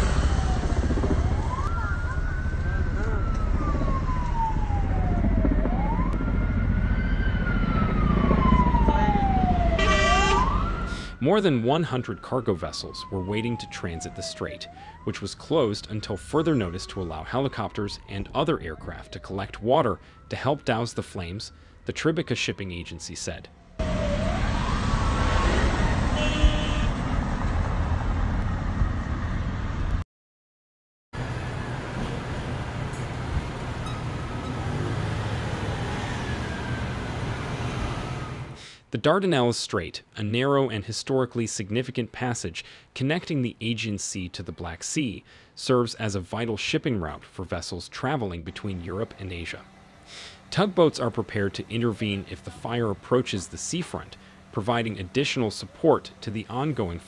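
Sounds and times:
wailing siren: 0.0 - 29.4, 31.2 - 38.6, 48.4 - 57.0
vehicle engines rumbling: 0.0 - 30.0, 31.2 - 38.7, 47.0 - 57.0
wind: 0.0 - 30.0, 31.2 - 57.0
short car horn beep: 26.2 - 27.0.

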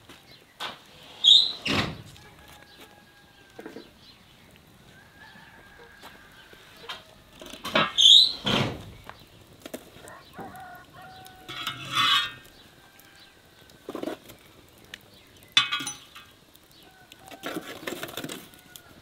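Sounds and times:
chickens clucking: 1.0 - 14.1.

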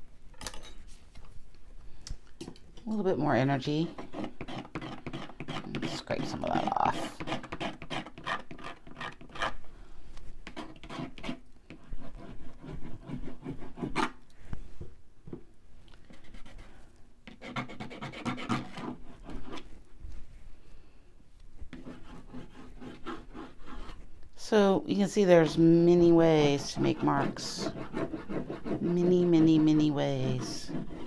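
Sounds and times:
wooden skewer scraping paper: 26.4 - 31.0.

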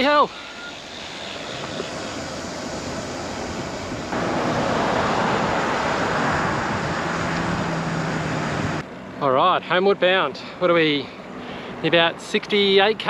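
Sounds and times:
wind rushing over microphone: 0.0 - 8.8.

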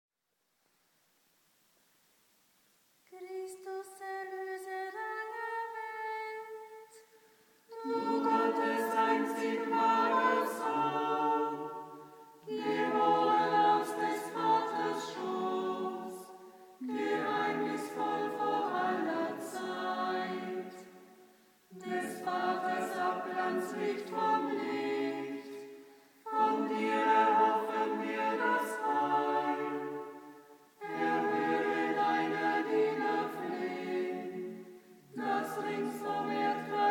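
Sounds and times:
choir singing in harmony: 7.7 - 36.9.

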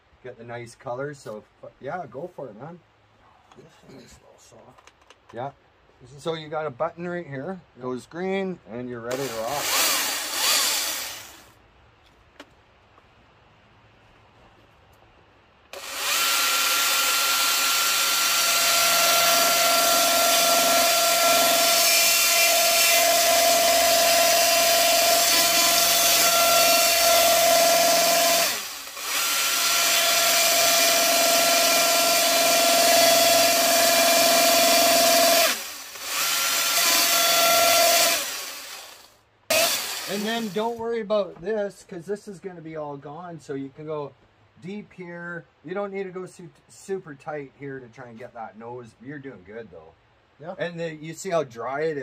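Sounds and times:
electric chainsaw cutting wood: 9.1 - 11.6, 15.7 - 40.7.

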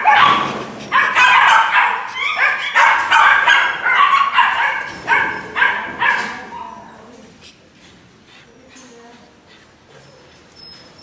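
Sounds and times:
puppy barking and yapping: 0.0 - 6.7.

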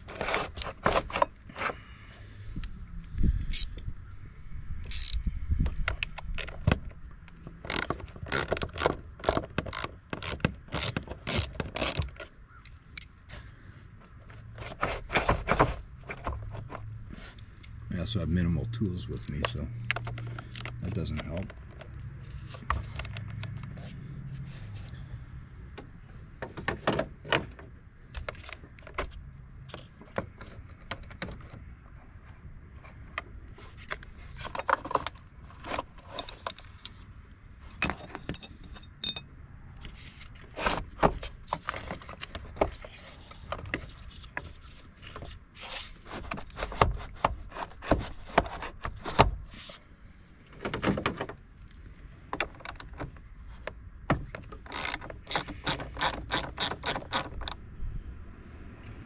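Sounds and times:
socket ratchet clicking: 54.7 - 57.6.

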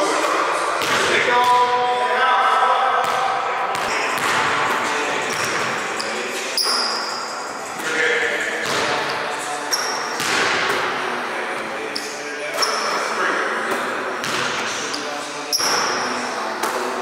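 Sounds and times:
sneaker squeaks: 5.3 - 7.4, 8.6 - 10.2, 11.8 - 13.1, 14.8 - 16.4
basketballs bouncing on wooden floor: 8.6 - 9.0.

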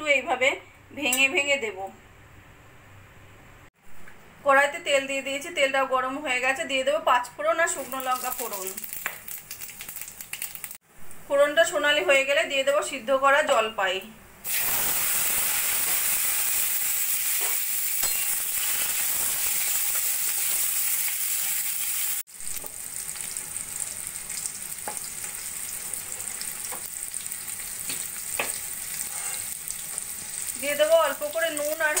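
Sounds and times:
olives sizzling in hot oil: 7.7 - 10.8, 14.4 - 32.0
metal spatula scraping pan: 28.5 - 29.6.

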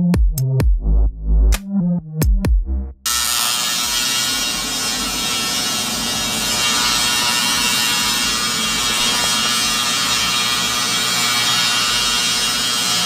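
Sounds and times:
welding arc buzzing and crackling: 3.1 - 13.0.

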